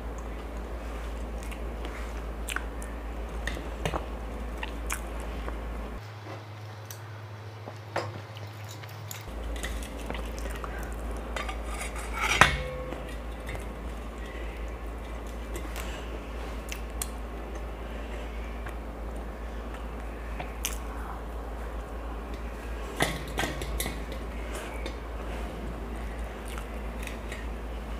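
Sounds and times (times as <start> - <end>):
steel plates and bowls clinking: 9.3 - 15.7, 22.9 - 25.1.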